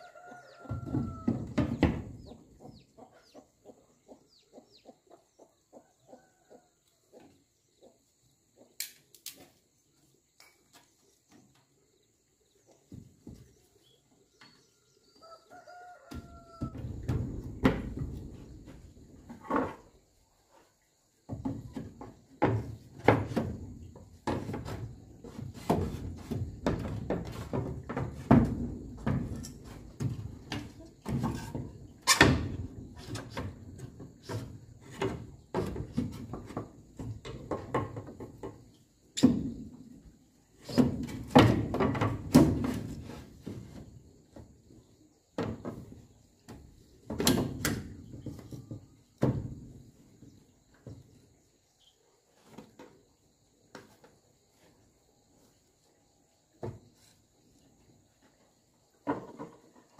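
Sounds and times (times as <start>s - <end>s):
wooden boards knocking and scraping: 0.2s - 2.6s, 15.8s - 51.4s, 58.0s - 59.9s.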